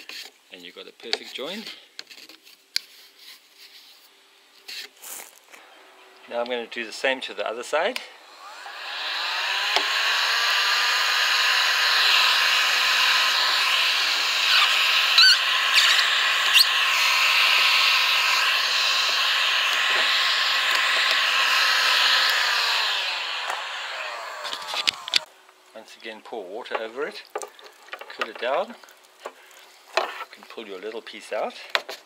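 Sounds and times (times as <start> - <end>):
heat gun blowing hot air: 8.0 - 25.3.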